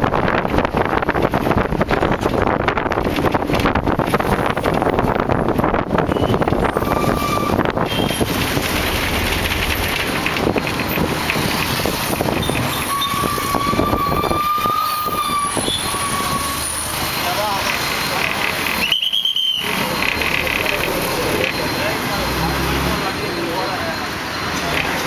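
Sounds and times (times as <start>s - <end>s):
engine and tyre rumble: 0.0s - 25.0s
thin whistle-like tone: 18.8s - 19.7s.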